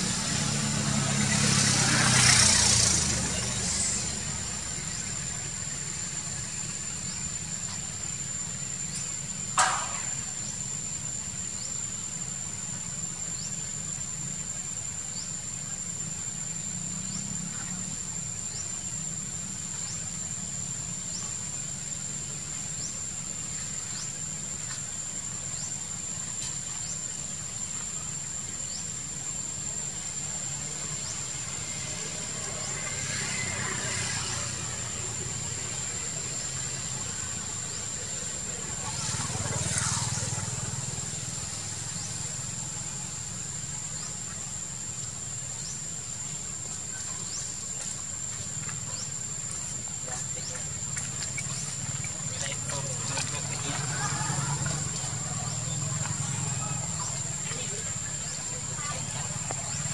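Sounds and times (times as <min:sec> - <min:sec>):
high-pitched insect drone: 0:00.0 - 0:59.9.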